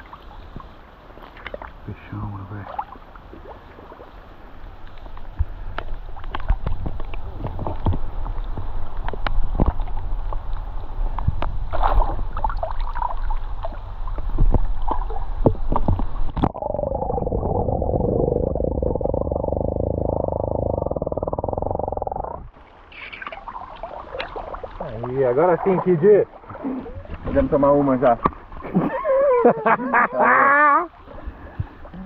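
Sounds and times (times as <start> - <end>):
water splashing in river: 0.0 - 16.7, 22.5 - 29.1
underwater gurgling: 2.5 - 29.4.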